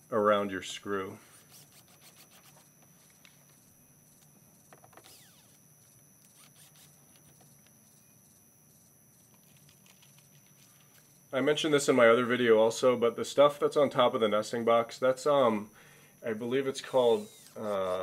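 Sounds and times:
faint high-pitched tone: 0:02.4 - 0:18.0
faint background hiss: 0:05.3 - 0:18.0.

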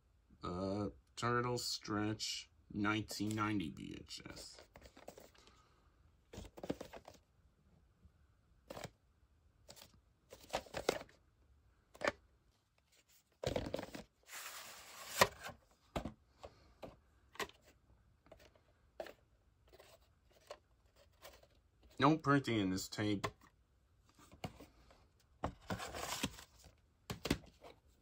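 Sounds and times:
cassette sliding against sleeve: 0:14.3 - 0:15.6.

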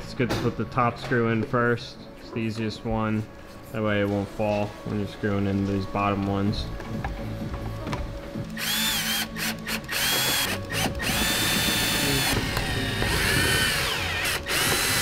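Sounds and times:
cordless driver motor whine: 0:08.5 - 0:15.0.

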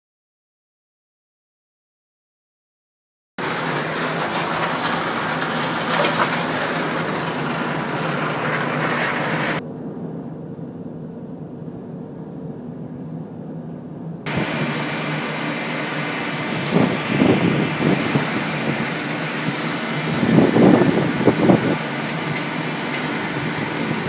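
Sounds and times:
boat engines and deck machinery: 0:03.4 - 0:24.0
wind and sea hiss: 0:14.3 - 0:24.0.

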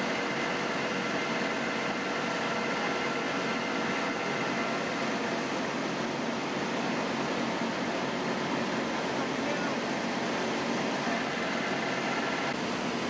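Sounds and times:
idling emergency vehicles hum: 0:00.0 - 0:13.0.

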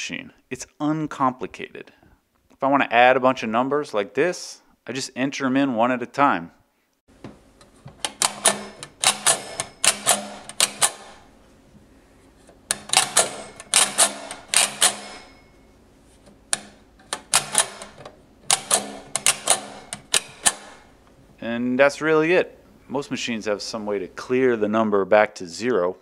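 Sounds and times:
toy adding machine metallic clicks: 0:08.0 - 0:11.2, 0:12.7 - 0:15.3, 0:16.5 - 0:20.8.

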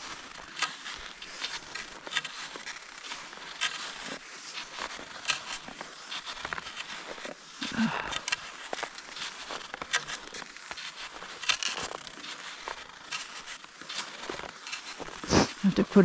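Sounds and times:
ski poles crunching into snow: 0:00.0 - 0:16.0
skis sliding over snow: 0:00.0 - 0:16.0.

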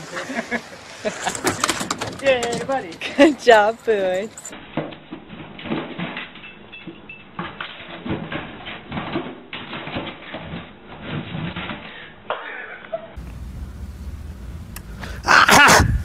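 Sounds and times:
low steady rumble: 0:13.2 - 0:15.2.

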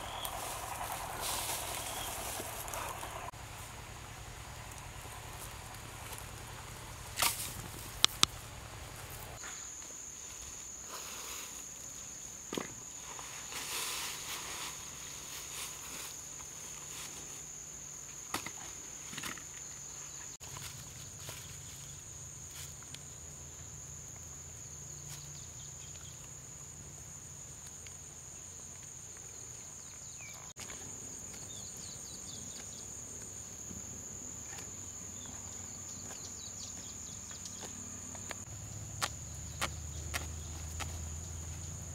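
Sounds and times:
insect buzzing: 0:00.0 - 0:06.4.

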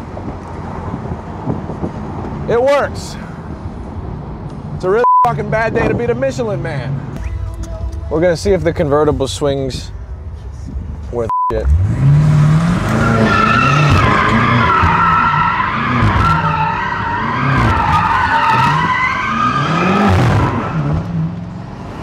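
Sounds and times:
car engine revving: 0:11.6 - 0:22.0
tyres squealing: 0:12.9 - 0:20.9.

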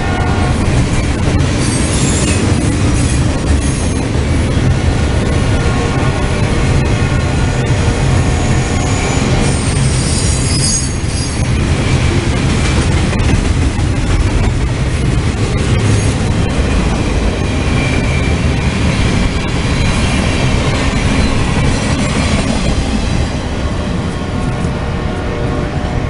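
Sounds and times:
rail joint clicks: 0:00.0 - 0:24.8
train wheels rumbling on rail: 0:00.0 - 0:26.0
high-pitched wheel squeal: 0:08.2 - 0:11.5.

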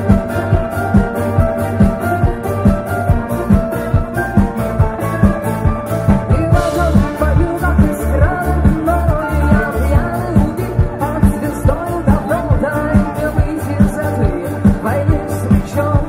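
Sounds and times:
rock band playing live: 0:00.0 - 0:16.0
person singing: 0:03.3 - 0:16.0.

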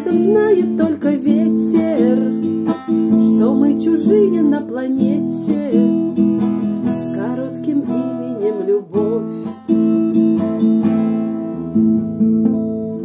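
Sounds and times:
woman singing: 0:00.0 - 0:09.7
acoustic guitar strumming: 0:00.0 - 0:13.0.

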